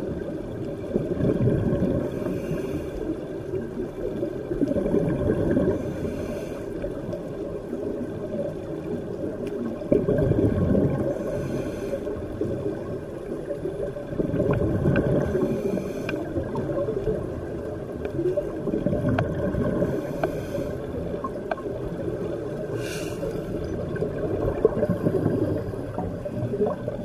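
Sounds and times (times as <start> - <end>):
exhaust bubbles rumbling: 0.0 - 2.2, 4.4 - 5.9, 9.7 - 11.3, 12.4 - 22.8, 23.4 - 27.0
regulator hiss on inhale: 2.0 - 3.3, 5.7 - 7.2, 11.0 - 12.5, 15.2 - 16.5, 19.8 - 21.1, 22.6 - 23.8
faint clicks: 8.4 - 9.9, 16.0 - 17.2, 17.9 - 22.4.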